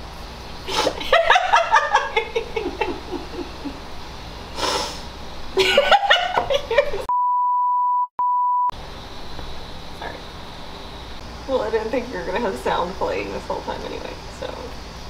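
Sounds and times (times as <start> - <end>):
woman giggling and laughing: 0.7 - 3.8, 5.6 - 7.1
censor bleep: 7.1 - 8.8.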